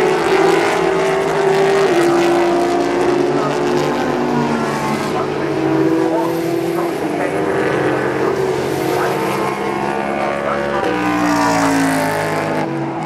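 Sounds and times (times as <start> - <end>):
race car engines at high revs: 0.0 - 13.0.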